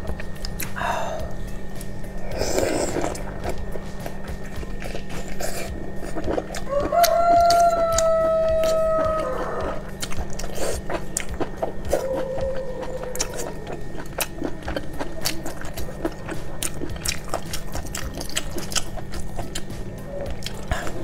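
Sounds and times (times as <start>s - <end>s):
chewing with wet mouth clicks: 9.4s - 21.0s.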